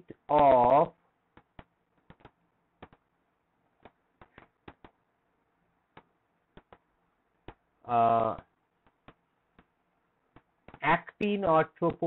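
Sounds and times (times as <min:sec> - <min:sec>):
stylus tapping on tablet: 0:01.3 - 0:03.1, 0:03.8 - 0:05.0, 0:05.9 - 0:07.7, 0:08.8 - 0:10.8.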